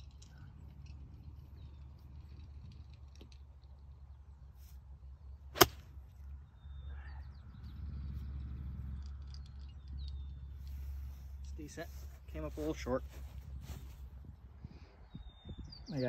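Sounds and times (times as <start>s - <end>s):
golf club striking ball: 5.5s - 6.0s.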